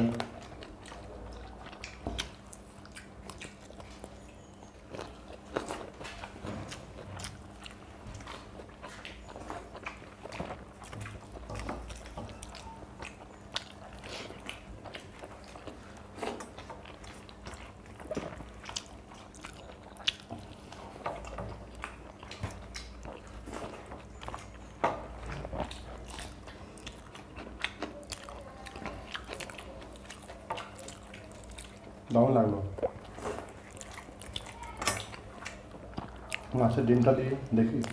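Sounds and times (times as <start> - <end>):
chewing and mouth smacking: 0.0 - 37.9
faint low hum: 0.0 - 37.9.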